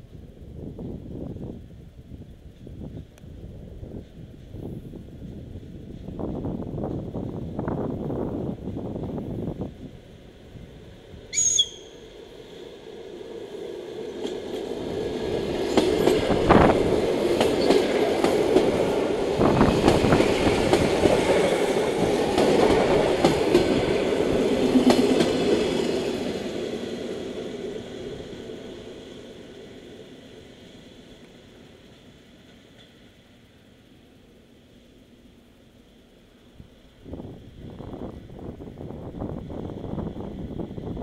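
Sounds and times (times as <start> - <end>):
electric train rumble and wheel clatter: 0.0 - 41.0
brief high whistle: 11.3 - 12.0.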